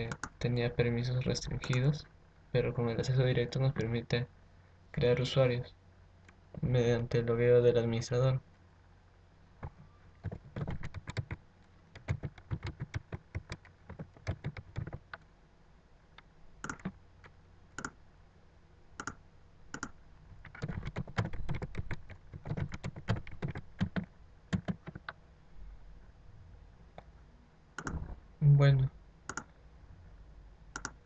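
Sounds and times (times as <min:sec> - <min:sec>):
computer keyboard typing: 0:10.2 - 0:11.4, 0:12.0 - 0:15.0, 0:16.6 - 0:17.0, 0:20.5 - 0:25.2.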